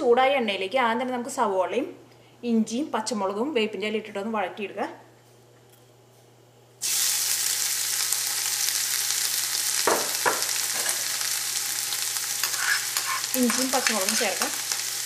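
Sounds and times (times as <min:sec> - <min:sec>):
onion sizzling in hot oil: 0:06.8 - 0:15.0.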